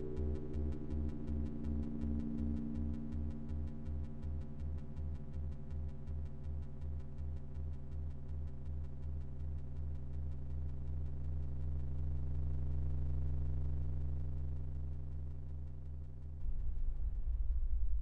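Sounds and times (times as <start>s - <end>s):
low synthesized bass pulsing: 16.4s - 18.0s.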